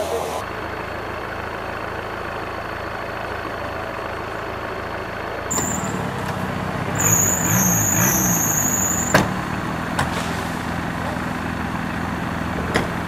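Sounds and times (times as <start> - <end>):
off-road engines running: 0.0 - 13.0
engine revving: 5.5 - 13.0.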